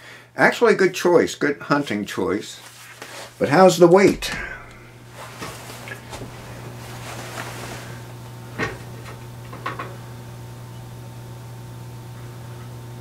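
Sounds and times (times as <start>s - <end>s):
low electrical hum: 0.0s - 13.0s
sharp knocks: 4.0s - 5.1s.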